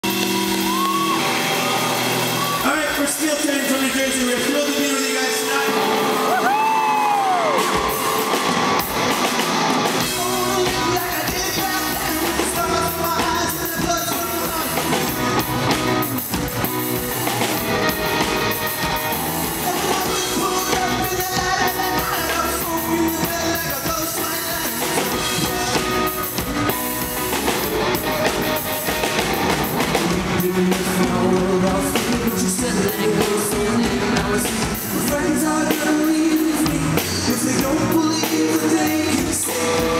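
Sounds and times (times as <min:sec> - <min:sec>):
live rock band playing: 0:00.0 - 0:39.9
man singing lead vocal: 0:10.0 - 0:15.3, 0:19.4 - 0:26.5, 0:29.8 - 0:39.9.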